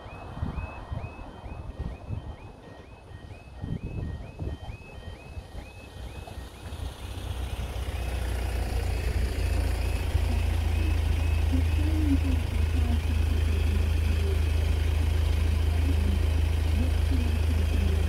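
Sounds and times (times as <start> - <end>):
level crossing alarm tone: 0.0 - 18.0
train diesel engine hum: 0.0 - 18.0.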